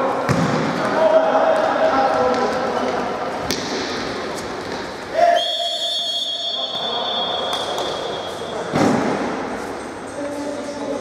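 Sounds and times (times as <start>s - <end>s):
referee's whistle long blast: 5.3s - 8.5s.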